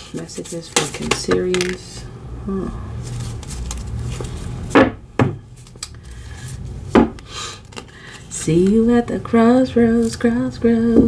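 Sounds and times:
cards being shuffled: 0.1s - 1.9s, 3.0s - 4.7s, 5.6s - 6.7s, 7.6s - 8.8s.

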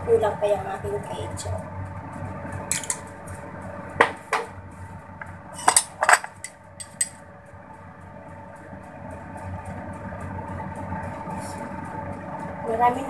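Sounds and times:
faint steady hum: 0.0s - 13.0s
metal spoon clinking on ceramic: 5.6s - 7.1s.

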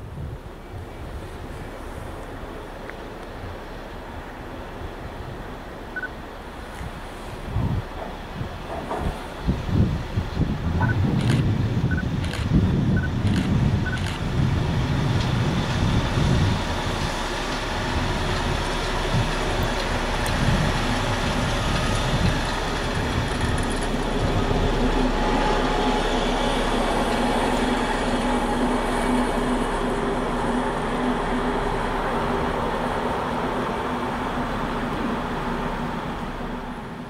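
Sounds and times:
diesel locomotive engine running: 0.0s - 37.0s
train wheels rolling on rail: 0.0s - 37.0s.

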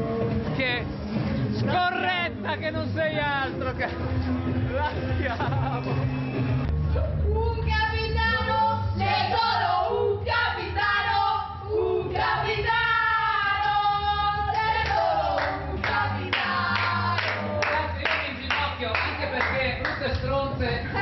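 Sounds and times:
music: 0.0s - 21.0s
women singing together: 7.2s - 18.2s
hand clapping: 14.5s - 20.4s.

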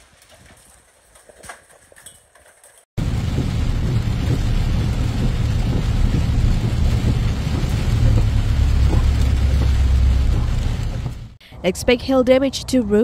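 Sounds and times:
hail ticking on windshield: 3.0s - 11.2s
vehicle interior rumble: 3.0s - 11.4s.

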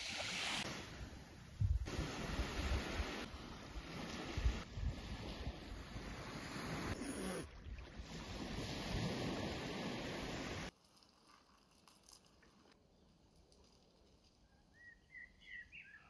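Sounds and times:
small waves washing on sand: 1.9s - 7.0s, 7.8s - 10.7s.

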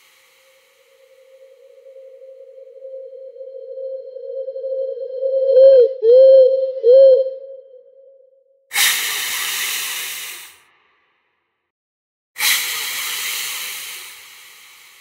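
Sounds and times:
loud hissing bursts: 8.7s - 10.6s, 12.4s - 15.0s.

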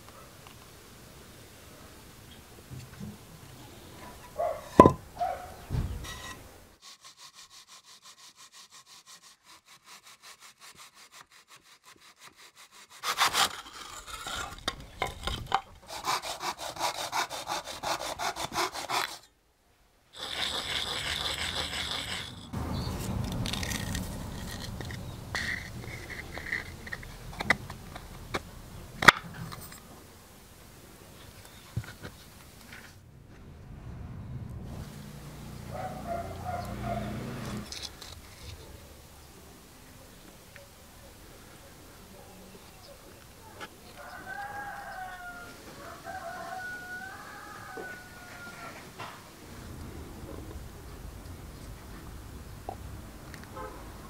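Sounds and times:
handling knocks: 4.8s - 6.0s
rubbing: 6.0s - 19.3s, 20.2s - 28.1s
hacksaw cutting: 6.1s - 19.3s, 20.2s - 22.6s, 23.2s - 28.1s.

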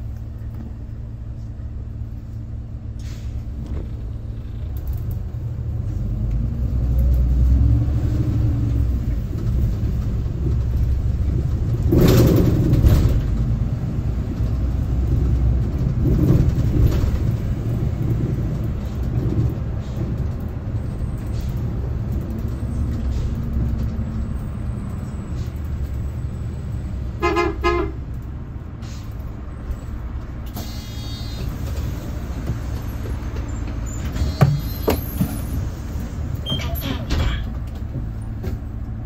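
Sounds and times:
bus engine and road rumble: 0.0s - 39.0s
vehicle horn toots: 27.2s - 28.0s.

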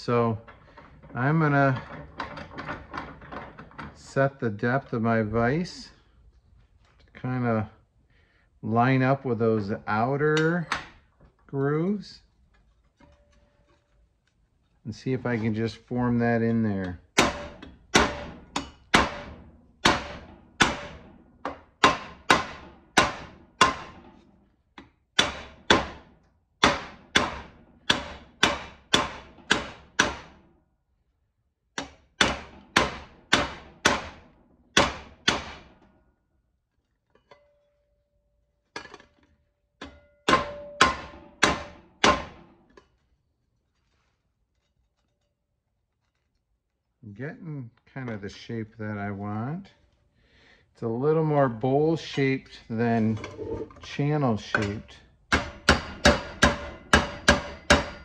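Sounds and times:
hammer striking sheet metal: 17.2s - 24.2s, 25.2s - 30.5s, 39.8s - 42.6s, 54.5s - 58.0s
faint metallic ring: 37.2s - 39.0s.

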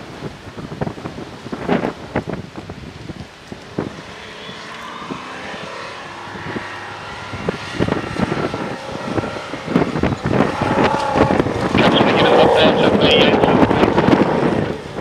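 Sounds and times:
car engine revving hard: 3.6s - 15.0s.

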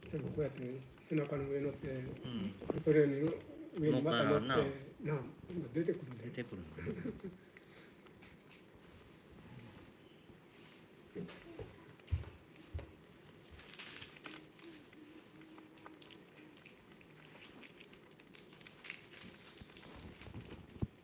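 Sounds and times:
crabs scratching and clicking: 0.0s - 4.1s, 5.4s - 8.8s, 12.0s - 21.0s.

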